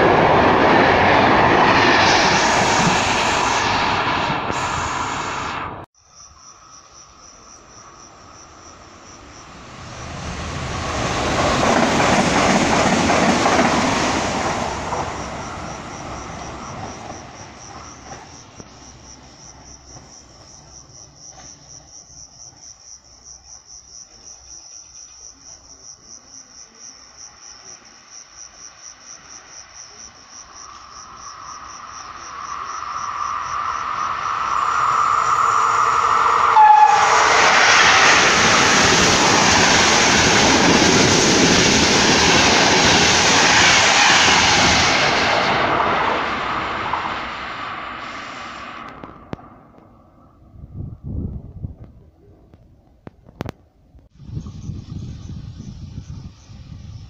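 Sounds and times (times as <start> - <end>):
approaching train rumble: 0.0 - 5.9, 6.5 - 24.2, 25.2 - 57.0
rushing noise: 0.0 - 5.9, 8.0 - 19.0, 29.6 - 50.8
insects chirping: 6.0 - 50.6, 54.2 - 57.0.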